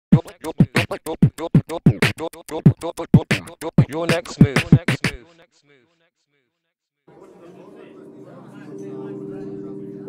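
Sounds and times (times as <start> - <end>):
beatboxed vocal percussion: 0.1 - 5.5.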